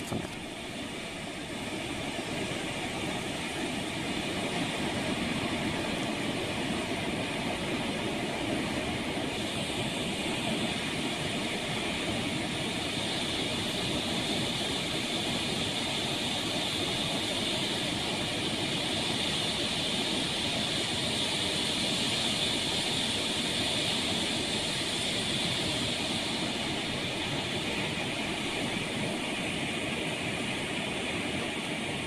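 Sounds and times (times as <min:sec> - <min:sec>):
water rushing through spillway: 0:00.0 - 0:32.0.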